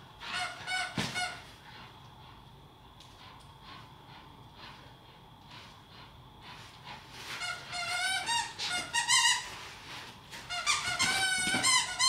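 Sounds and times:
dog toy squeaking: 7.4 - 9.5, 10.5 - 12.0.

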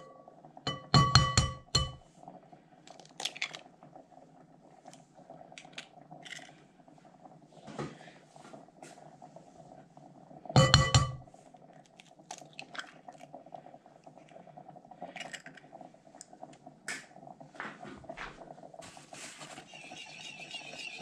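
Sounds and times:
ringing knock on bowl: 0.7 - 2.0, 10.6 - 11.2.

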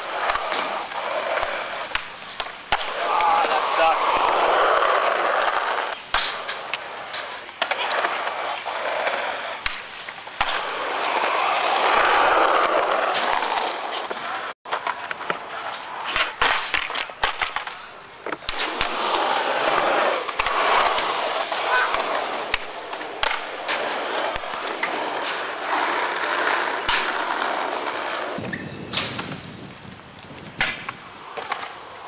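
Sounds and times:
skateboard wheels rolling on concrete: 0.0 - 32.0
skateboard clacks and knocks: 9.0 - 29.3.

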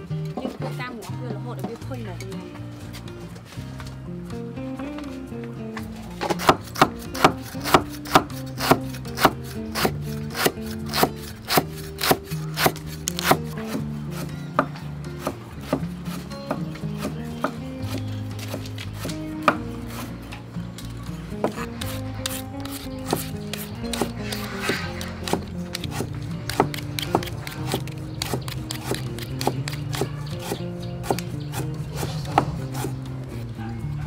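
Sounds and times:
soft instrumental music: 0.0 - 34.0
cleaver chopping on wooden board: 6.2 - 20.1, 21.3 - 33.0.

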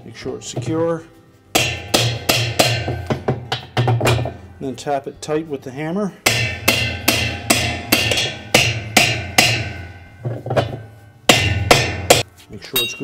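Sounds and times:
hammer striking metal wrench: 1.6 - 4.4, 6.2 - 13.0.

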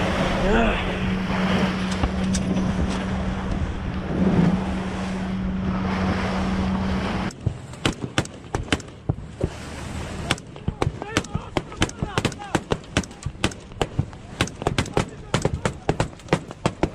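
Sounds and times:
wind on microphone: 0.0 - 7.7
boat engine humming: 0.0 - 16.9
water sound: 0.0 - 16.9.

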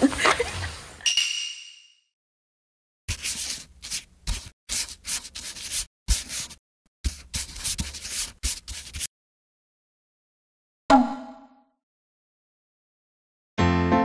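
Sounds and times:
pen scratching on paper: 3.1 - 9.1.

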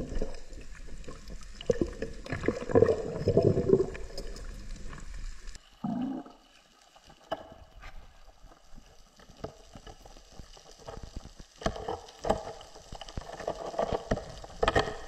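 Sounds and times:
underwater gurgling bubbles: 0.0 - 7.5
clicks and knocks underwater: 0.0 - 15.0.

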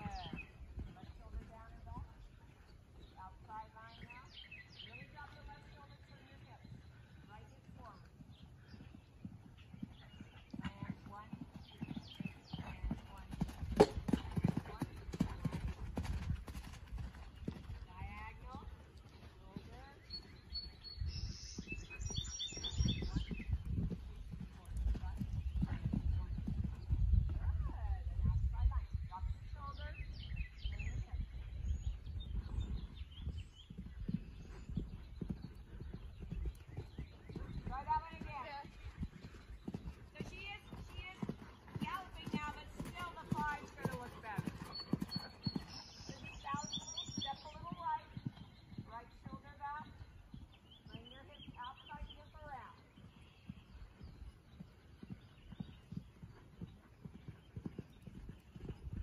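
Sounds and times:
wind rumble on microphone: 0.0 - 2.4, 12.0 - 18.8, 19.4 - 44.4, 58.0 - 59.0
horse hooves on sand: 36.5 - 50.0.

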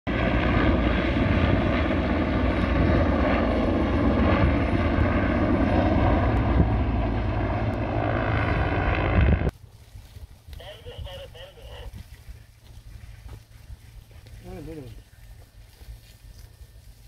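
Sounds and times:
helicopter rotor and turbine: 0.1 - 9.5.

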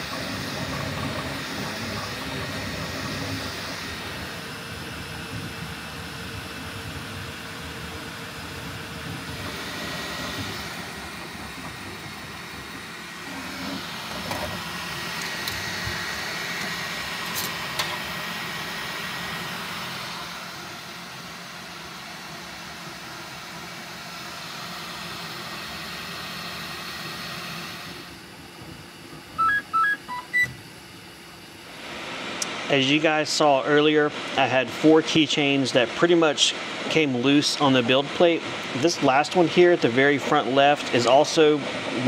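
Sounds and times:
printer fans and motors whirring: 0.0 - 42.0
thin high tone: 29.4 - 30.5.

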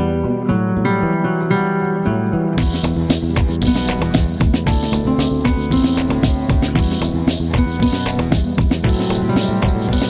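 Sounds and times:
instrumental music: 0.0 - 10.0
percussion beat: 2.6 - 10.0.

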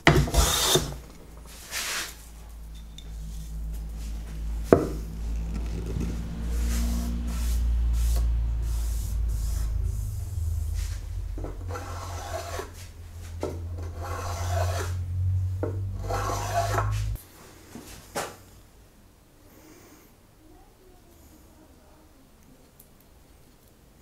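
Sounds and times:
low hum: 0.0 - 17.4
hand tool rasping on wood: 0.2 - 1.0, 13.9 - 15.0, 16.0 - 16.9.

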